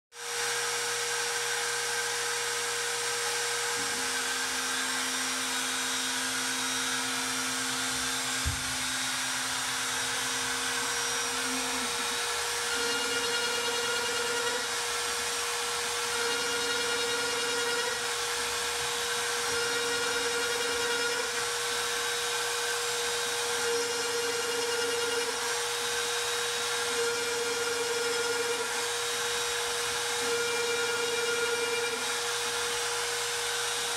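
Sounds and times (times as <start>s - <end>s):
router spinning with high whine: 0.1s - 33.9s
stepper motor tones: 3.2s - 14.8s, 15.4s - 18.2s.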